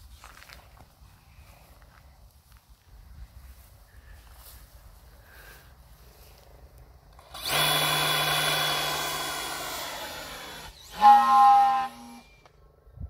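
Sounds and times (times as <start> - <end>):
electric motor and propeller whine: 7.2 - 12.8.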